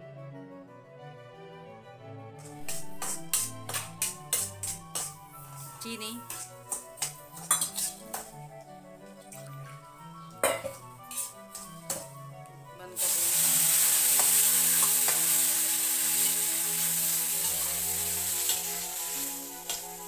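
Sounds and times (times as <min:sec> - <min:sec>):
water sizzling in hot pan: 0:02.6 - 0:08.3, 0:10.7 - 0:12.1, 0:13.0 - 0:20.0.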